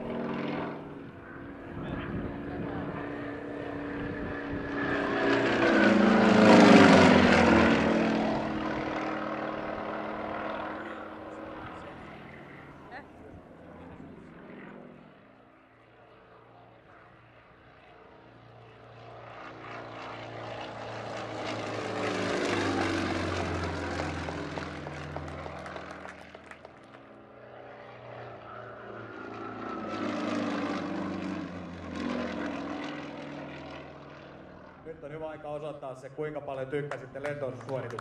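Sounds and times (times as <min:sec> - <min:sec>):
propeller plane engine: 0:00.0 - 0:38.0.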